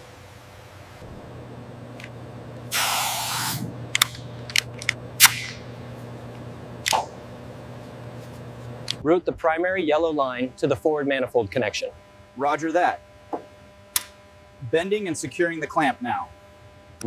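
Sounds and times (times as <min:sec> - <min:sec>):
low machine hum: 0:00.0 - 0:17.0
air hiss: 0:02.7 - 0:03.7.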